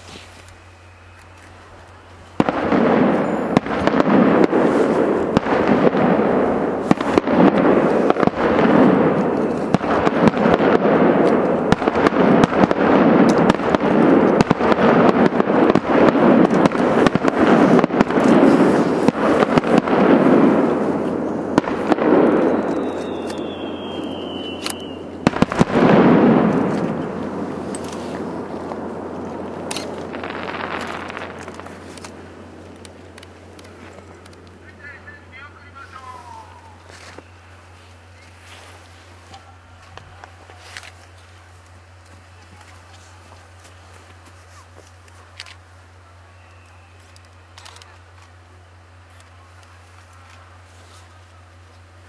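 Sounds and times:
firework bursts and crackling: 0:01.5 - 0:52.0
falling firework whistle: 0:17.6 - 0:27.1, 0:46.3 - 0:47.2.

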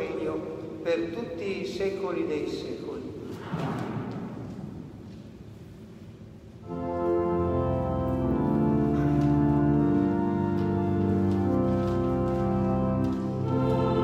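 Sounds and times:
organ playing sustained chords: 0:06.6 - 0:14.0.

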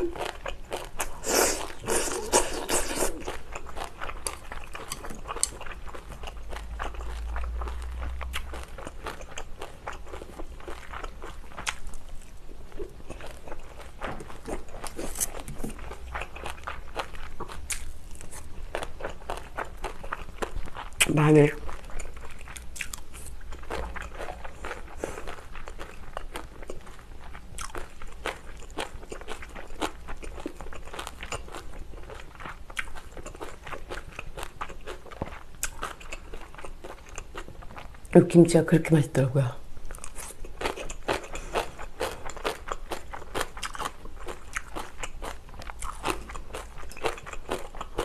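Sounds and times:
mouth chewing rice: 0:00.0 - 0:38.1, 0:39.6 - 0:48.0.

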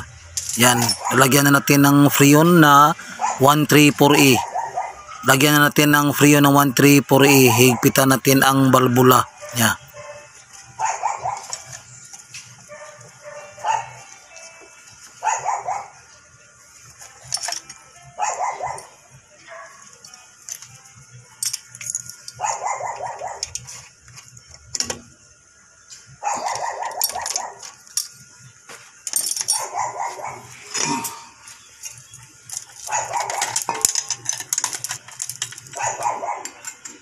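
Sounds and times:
dog barking: 0:03.1 - 0:03.4, 0:04.4 - 0:05.3, 0:09.4 - 0:11.6, 0:12.7 - 0:14.0, 0:15.2 - 0:16.0, 0:18.2 - 0:19.8, 0:22.4 - 0:23.5, 0:26.2 - 0:27.6, 0:29.6 - 0:30.5, 0:32.9 - 0:33.9, 0:35.8 - 0:36.6.

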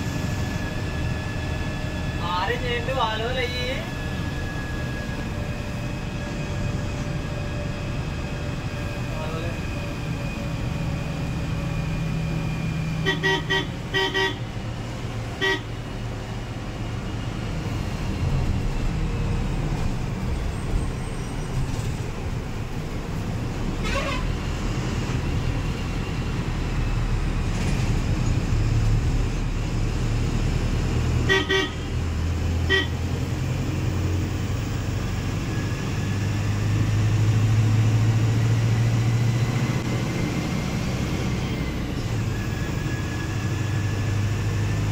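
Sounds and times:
bus engine droning: 0:00.0 - 0:44.9
horn toots: 0:13.0 - 0:14.4, 0:31.3 - 0:31.9, 0:32.7 - 0:33.0.

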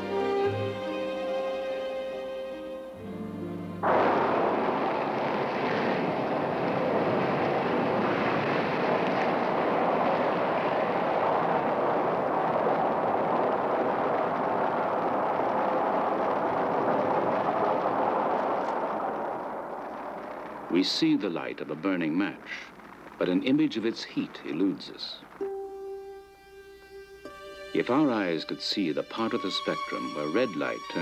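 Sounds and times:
loud rushing noise: 0:03.8 - 0:19.6.

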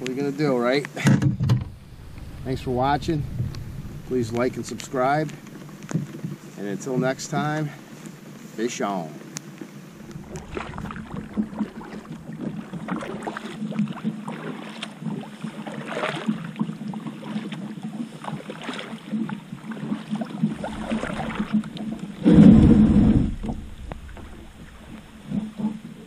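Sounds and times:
plastic hull running onto bank: 0:01.0 - 0:07.7, 0:20.5 - 0:26.0
kayak paddle splashing: 0:01.6 - 0:08.6, 0:09.2 - 0:26.0.

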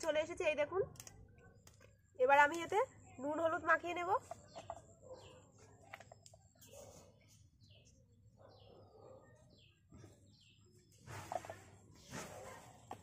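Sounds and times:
faint bird chirping: 0:02.8 - 0:13.0.

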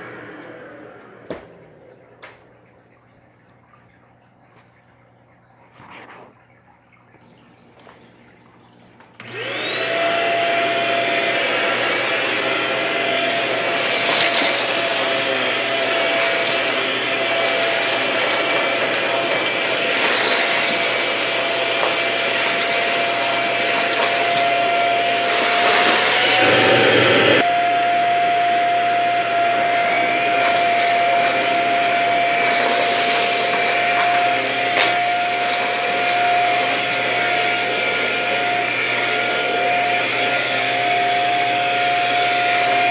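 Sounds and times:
stick vacuum motor whining: 0:00.0 - 0:02.3, 0:09.2 - 0:42.9
debris crackling in vacuum: 0:12.0 - 0:26.4.

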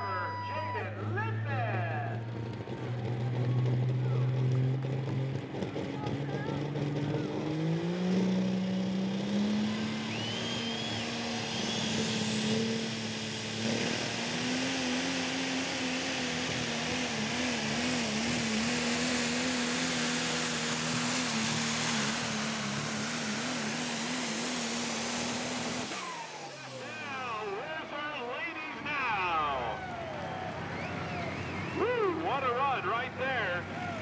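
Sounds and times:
diesel engine at full throttle: 0:00.0 - 0:34.0
turbo whistle: 0:10.0 - 0:12.1.

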